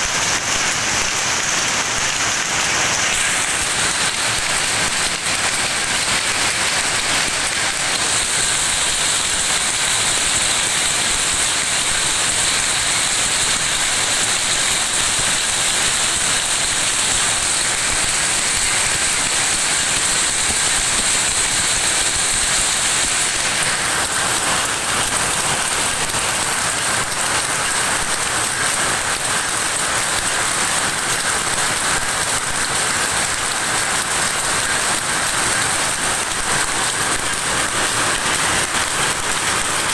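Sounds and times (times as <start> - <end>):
powerlooms running: 0.0 - 39.9.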